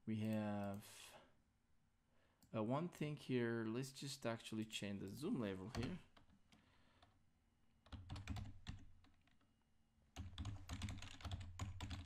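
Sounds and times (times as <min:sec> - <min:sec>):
typing on computer keyboard: 0:07.8 - 0:09.4, 0:10.2 - 0:12.0.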